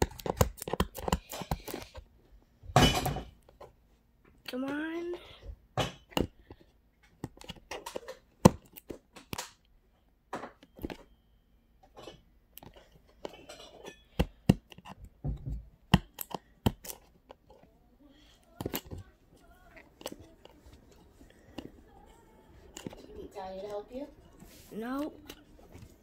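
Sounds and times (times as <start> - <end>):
clicks taps and small knocks: 0.0 - 2.0, 2.7 - 9.7, 11.8 - 17.7.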